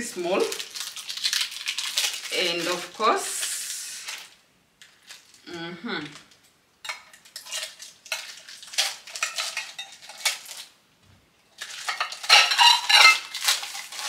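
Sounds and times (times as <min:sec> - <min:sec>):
plastic packaging rustling: 0:00.0 - 0:05.4, 0:06.0 - 0:10.8, 0:11.5 - 0:14.0
ceramic bowls clinking: 0:11.6 - 0:13.8.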